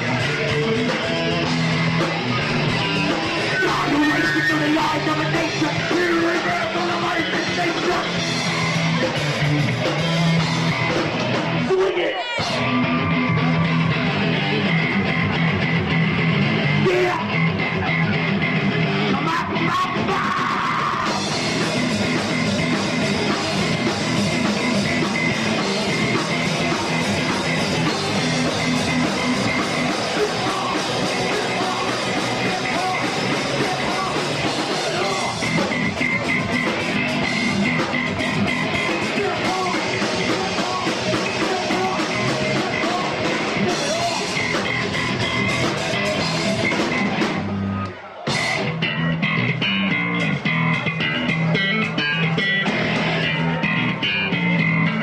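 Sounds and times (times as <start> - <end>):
funk metal band playing: 0.0 - 55.0
person yelling vocals: 3.5 - 8.2, 11.6 - 12.6, 16.8 - 17.3, 19.1 - 21.2, 30.1 - 35.4, 39.0 - 44.3.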